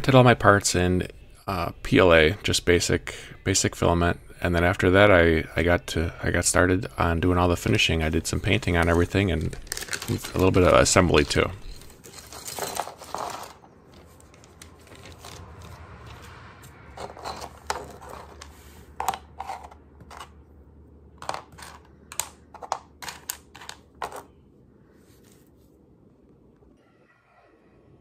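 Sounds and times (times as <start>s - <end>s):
plastic bag rustling: 7.6s - 15.8s
plastic pieces clicking on workbench: 21.2s - 24.3s.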